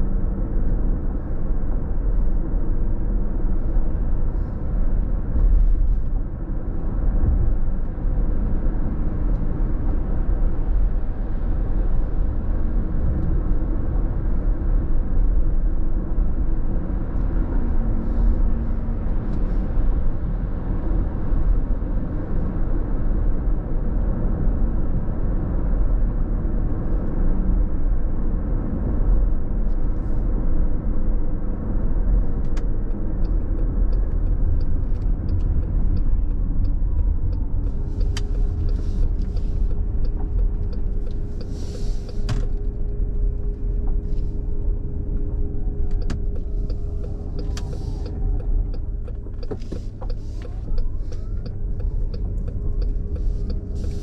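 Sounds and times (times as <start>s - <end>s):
road rumble in car cabin: 0.0s - 54.0s
drivetrain hum: 32.5s - 54.0s.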